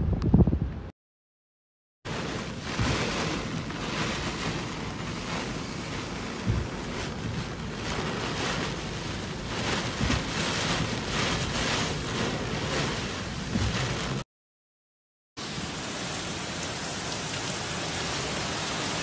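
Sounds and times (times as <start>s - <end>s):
storm-force wind: 0.0s - 0.9s, 2.1s - 14.2s
wind buffeting microphone: 0.0s - 0.9s, 2.2s - 14.2s
heavy rain: 2.1s - 14.3s, 15.4s - 19.0s.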